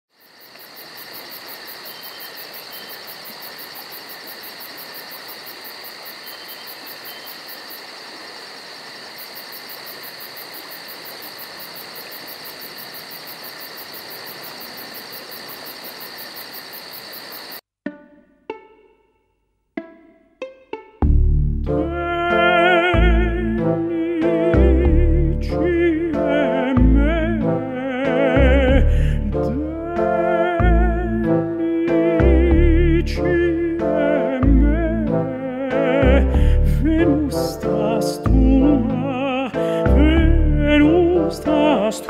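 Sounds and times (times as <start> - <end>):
crickets chirring: 0.1 - 17.6
plucked strings: 17.8 - 23.5.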